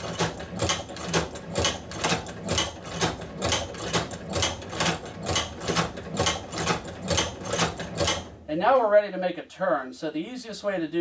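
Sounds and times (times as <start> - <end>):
sewing machine mechanical clacking: 0.0 - 8.5.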